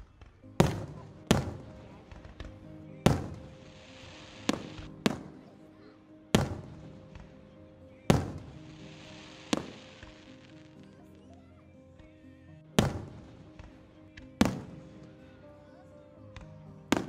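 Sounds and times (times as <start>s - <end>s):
crackling hiss of fireworks: 0.0s - 5.6s, 6.4s - 11.1s, 12.8s - 15.3s, 16.4s - 17.0s
fireworks bursting with echo: 0.0s - 5.6s, 6.3s - 11.0s, 12.8s - 15.3s, 16.4s - 17.0s.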